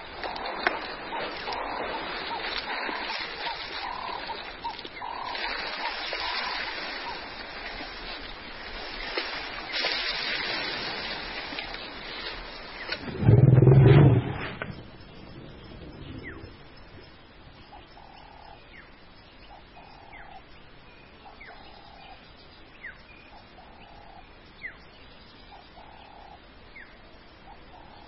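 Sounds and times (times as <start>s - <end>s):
chorus of small animal calls: 0.0s - 7.9s
elephant roaring: 13.0s - 14.7s.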